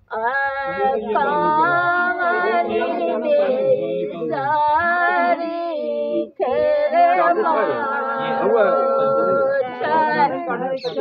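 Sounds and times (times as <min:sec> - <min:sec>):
women singing folk song unaccompanied: 0:00.0 - 0:11.0.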